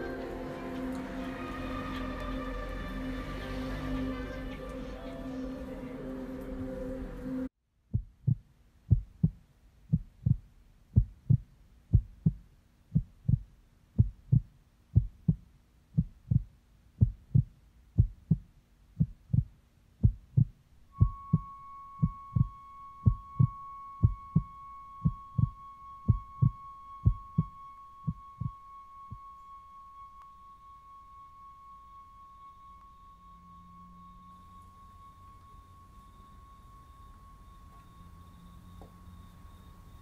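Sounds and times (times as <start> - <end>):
steady high tone: 0.0 - 7.5, 20.8 - 40.0
low sharp thumps in pairs: 7.9 - 21.4.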